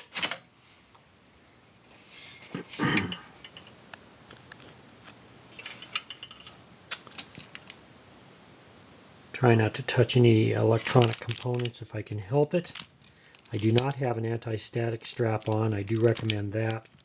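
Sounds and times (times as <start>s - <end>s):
light metal clicks and rattles: 5.6s - 7.8s.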